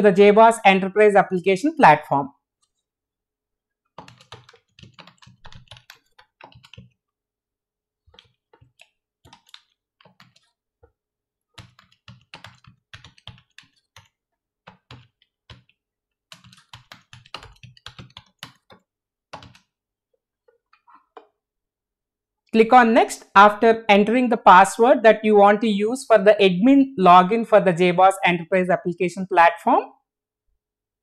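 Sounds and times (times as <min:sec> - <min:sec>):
computer keyboard typing: 0:03.9 - 0:07.1, 0:08.1 - 0:10.6, 0:11.6 - 0:19.8.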